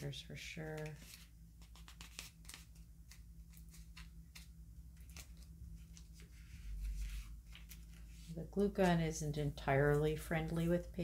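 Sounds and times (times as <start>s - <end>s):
low steady hum: 0.0s - 11.0s
paper crackling and clicking: 0.6s - 8.2s.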